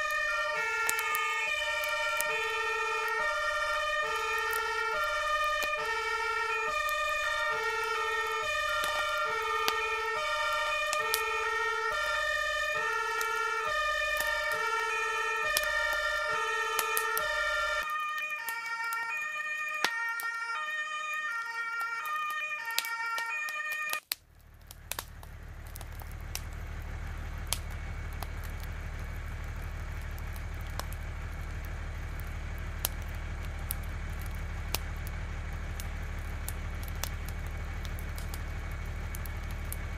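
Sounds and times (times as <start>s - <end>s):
scattered crackles: 0.0s - 39.9s
two-tone fire engine siren: 0.0s - 39.9s
steady low rumble: 24.2s - 39.9s.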